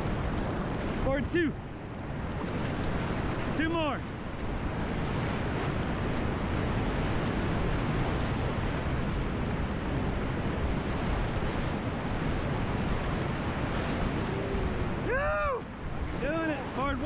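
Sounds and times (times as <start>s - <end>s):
whitewater rushing: 0.0s - 17.0s
wind buffeting microphone: 0.0s - 17.0s.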